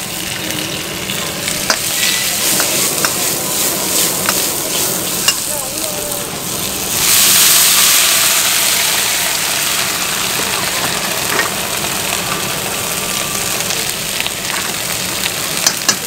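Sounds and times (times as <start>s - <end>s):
steam hissing: 0.0s - 16.0s
vegetables sizzling in a wok: 0.0s - 16.0s
metal ladle scraping wok: 1.4s - 5.6s.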